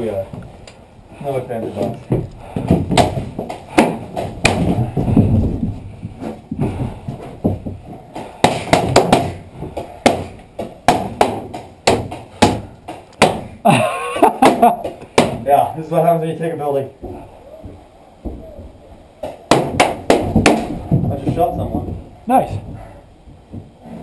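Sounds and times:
paintballs striking plywood: 1.9 - 13.6, 14.4 - 15.5, 19.2 - 22.1.

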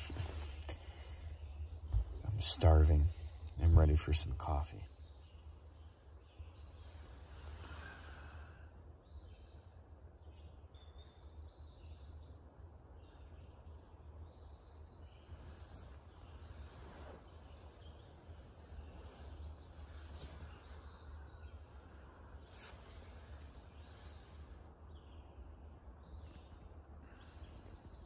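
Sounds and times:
steady low rumble: 0.0 - 4.8
birdsong: 0.0 - 28.0.

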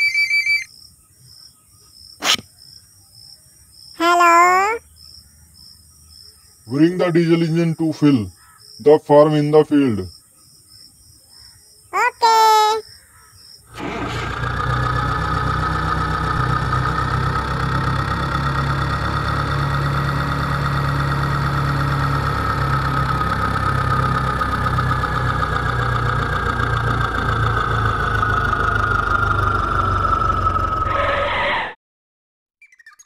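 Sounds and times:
model tractor engine chugging: 13.7 - 30.7
high motor whine: 13.7 - 31.7.

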